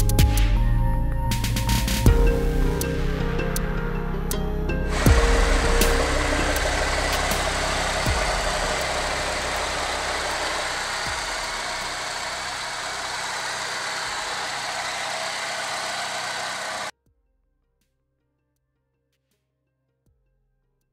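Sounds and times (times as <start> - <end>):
pickup engine idling: 4.9 - 16.9.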